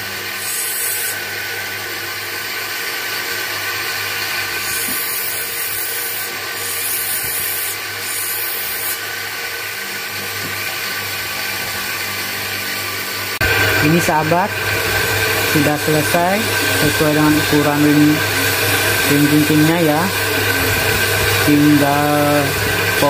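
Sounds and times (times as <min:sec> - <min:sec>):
bench grinder motor hum: 0:00.0 - 0:23.0
stone grinding on wheel: 0:00.4 - 0:01.2, 0:04.6 - 0:09.0.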